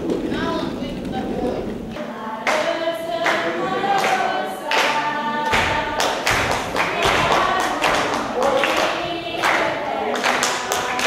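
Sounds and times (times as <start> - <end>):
children's choir singing: 0.0 - 11.0.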